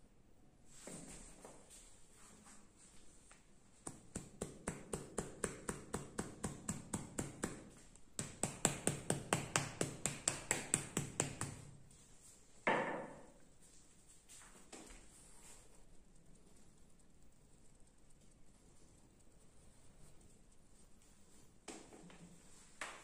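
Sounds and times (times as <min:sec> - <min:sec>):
brush tapping on body: 0:03.3 - 0:12.1, 0:18.2 - 0:23.0.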